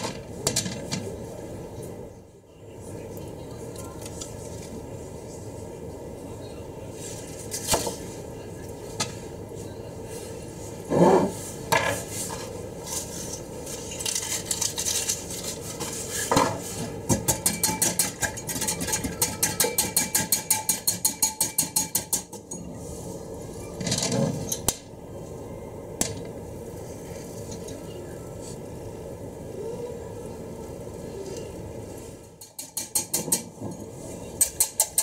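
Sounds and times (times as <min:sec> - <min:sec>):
cookware and utensil clatter: 0:13.7 - 0:22.7, 0:32.4 - 0:35.0.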